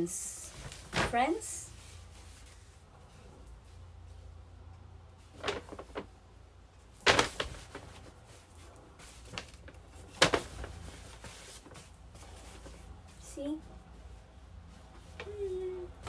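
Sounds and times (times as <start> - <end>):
fabric swishes and flaps: 0.5 - 4.3, 5.2 - 6.2, 6.9 - 16.0.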